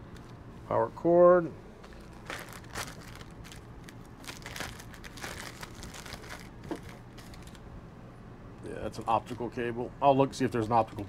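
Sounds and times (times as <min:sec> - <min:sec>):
plastic bag crinkling: 0:01.8 - 0:07.6.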